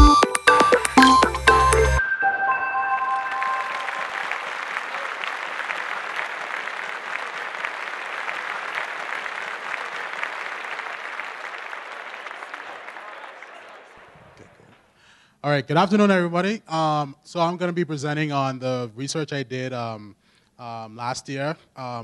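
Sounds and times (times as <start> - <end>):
electronic music: 0.0 - 5.0
audience applauding: 2.9 - 14.9.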